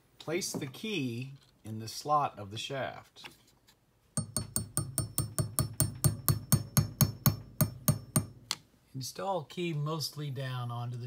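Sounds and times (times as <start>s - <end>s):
hammer tapping metal: 4.2s - 8.6s.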